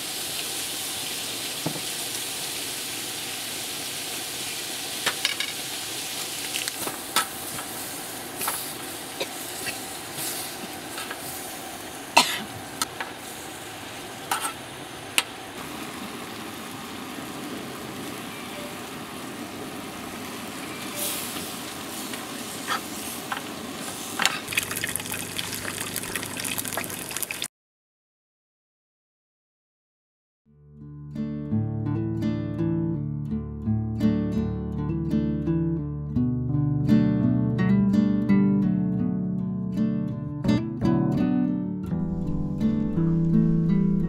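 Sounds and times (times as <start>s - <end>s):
egg sizzling: 0.0s - 27.5s
food sizzling in a frying pan: 0.0s - 27.5s.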